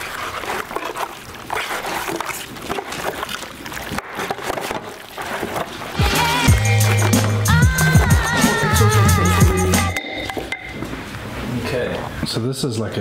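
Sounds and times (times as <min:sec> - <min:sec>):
aluminium foil pan crackling: 0:00.0 - 0:09.1
hands squelching wet meat: 0:00.0 - 0:09.3.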